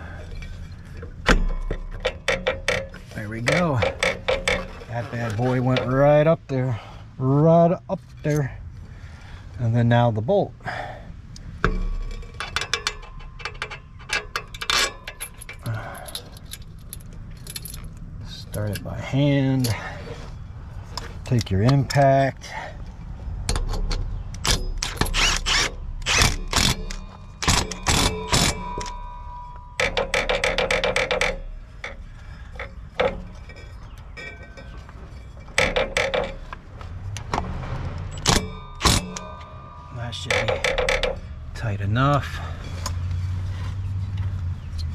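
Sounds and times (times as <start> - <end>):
metal parts clicking and clinking: 0.0 - 6.0, 11.4 - 22.0, 23.0 - 43.2
impact wrench hammering: 11.6 - 15.2, 23.5 - 34.8, 35.5 - 36.5, 38.2 - 41.6.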